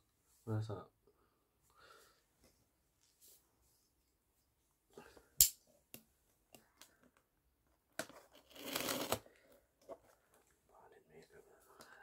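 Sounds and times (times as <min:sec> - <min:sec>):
packing tape tearing: 0:08.4 - 0:09.2.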